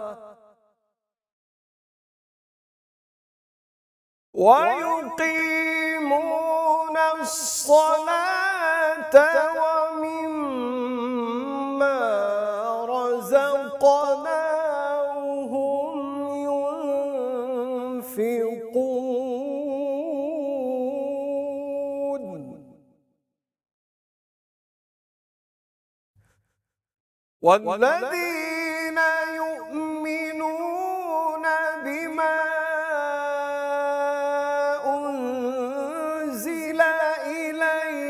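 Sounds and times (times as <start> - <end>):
man chanting a recitation: 0.0 - 0.4, 4.4 - 22.6, 27.4 - 38.0.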